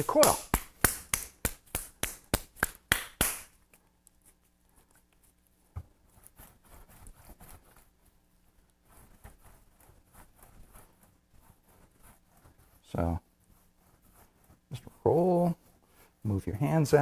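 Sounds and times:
clay slapped between palms: 0:00.0 - 0:03.7.

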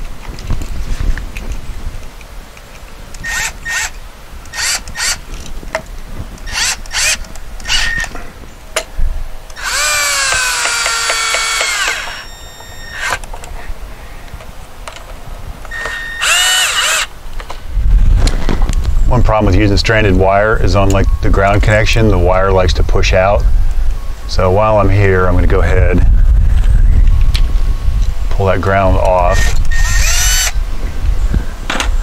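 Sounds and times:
cordless drill driving screws: 0:03.2 - 0:05.2, 0:06.4 - 0:08.1, 0:09.5 - 0:13.2, 0:15.7 - 0:17.1, 0:29.3 - 0:30.6.

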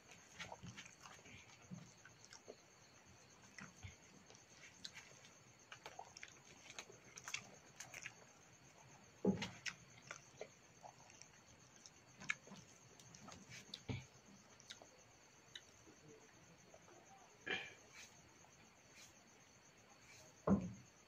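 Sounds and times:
person chewing: 0:00.1 - 0:02.6, 0:03.4 - 0:08.3, 0:09.4 - 0:14.9.

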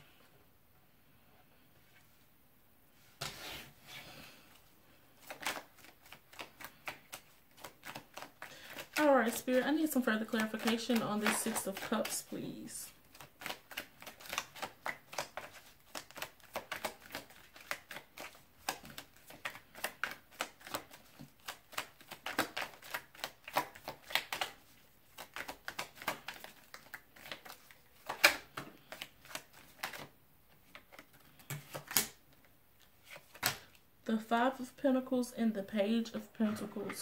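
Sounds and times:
cards being shuffled: 0:05.1 - 0:33.8.

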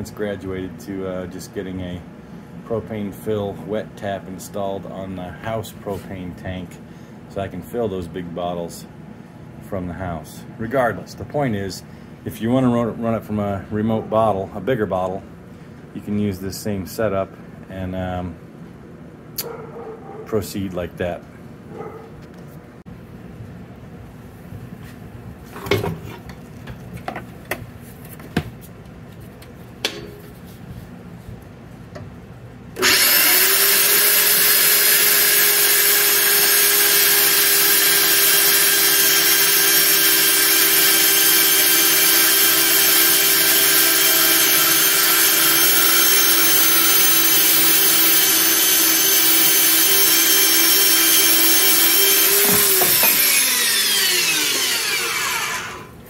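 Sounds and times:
electric saw cutting metal pipe: 0:32.8 - 0:56.0.

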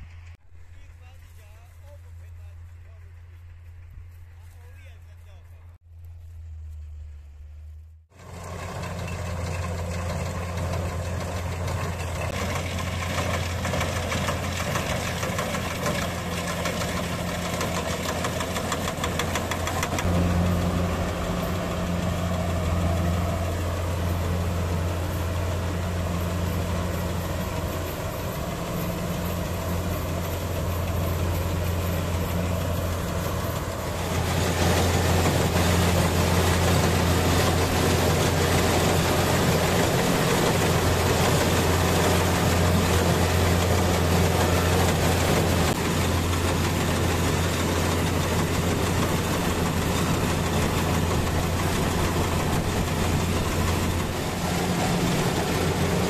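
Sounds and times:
combine harvester engine hum: 0:00.0 - 0:56.0
machinery clatter: 0:06.6 - 0:56.0.

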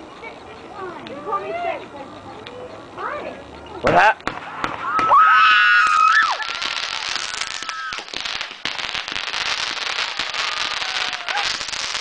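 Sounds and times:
fireworks crackling and popping: 0:03.5 - 0:12.0
fireworks whistle: 0:04.3 - 0:12.0.

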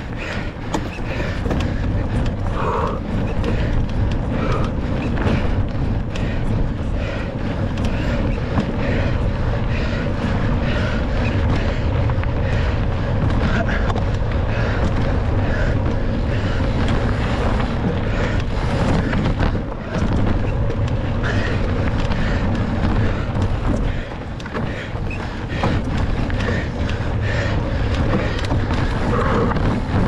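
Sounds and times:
bike knocks and rattles: 0:00.0 - 0:30.0
wind buffeting microphone: 0:00.0 - 0:30.0.

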